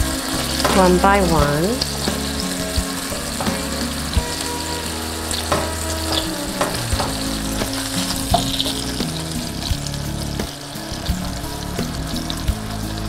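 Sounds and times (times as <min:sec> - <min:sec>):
patties sizzling in oil: 0:00.0 - 0:13.0
spatula scraping a pan: 0:01.8 - 0:13.0.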